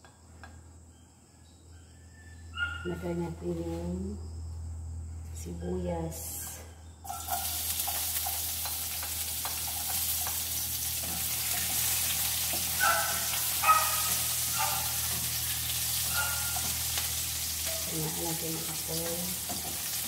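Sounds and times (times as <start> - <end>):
onions sizzling in frying pan: 7.1 - 20.0
spatula scraping pan: 7.1 - 20.0.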